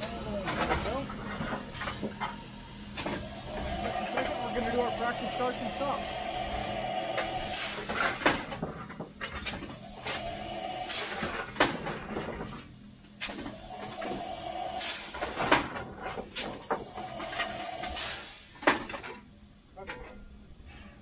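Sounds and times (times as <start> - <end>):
steam hissing: 1.6 - 8.4, 9.4 - 11.5, 13.2 - 18.8.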